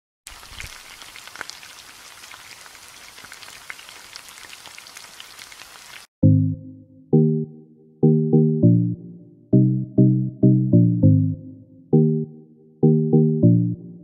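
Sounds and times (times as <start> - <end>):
hiss with ticks and crackles: 0.3 - 6.1.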